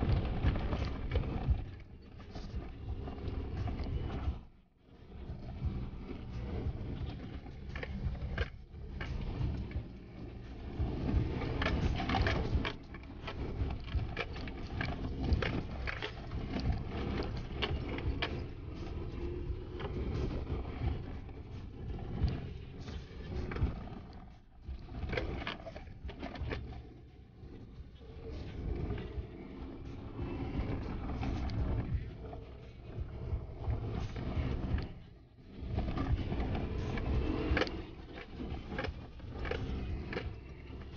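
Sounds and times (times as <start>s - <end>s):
engine and tyre rumble: 0.0s - 40.9s.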